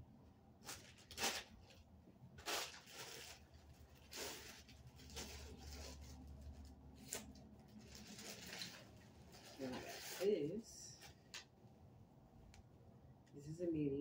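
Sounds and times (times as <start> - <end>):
plastic bags crinkling: 0.6 - 10.3.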